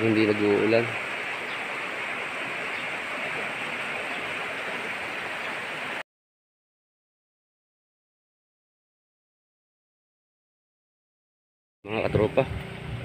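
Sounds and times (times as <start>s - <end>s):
river rushing past rocks: 0.0s - 6.0s.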